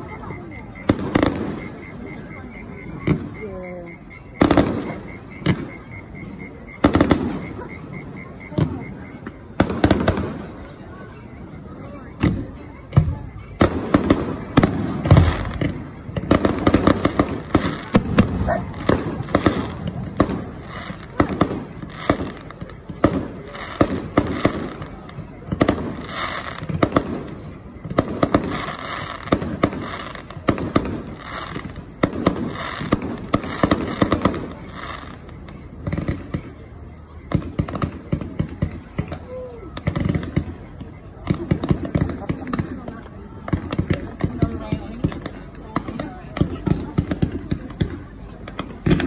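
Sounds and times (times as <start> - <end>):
fireworks bursting and crackling: 0.0 - 49.0.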